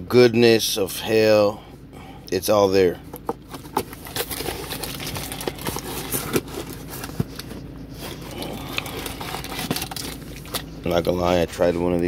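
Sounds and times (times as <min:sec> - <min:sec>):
cardboard box crinkling and scraping: 0:03.3 - 0:11.4.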